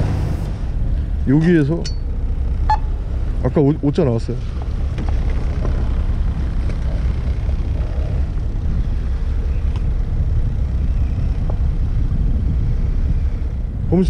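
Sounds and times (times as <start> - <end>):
boat engine rumble: 0.0 - 14.0
faint clicks: 9.6 - 9.9.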